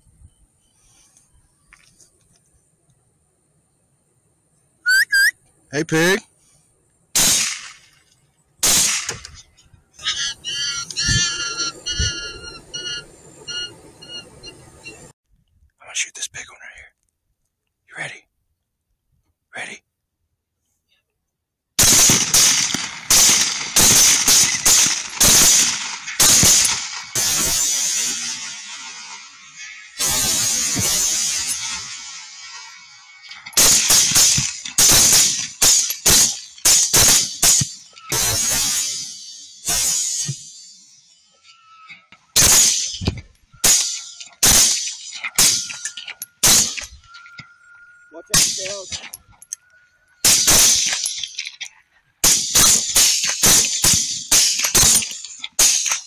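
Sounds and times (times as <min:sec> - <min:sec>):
rifle shots echoing: 0:07.2 - 0:07.9, 0:08.6 - 0:09.2, 0:21.8 - 0:32.6, 0:43.6 - 0:45.8.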